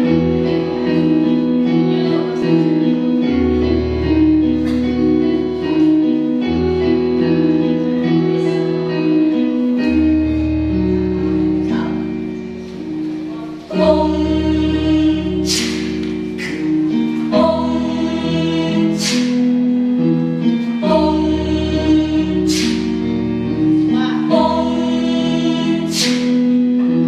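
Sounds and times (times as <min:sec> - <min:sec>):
choir singing held chords: 0:11.6 - 0:27.0.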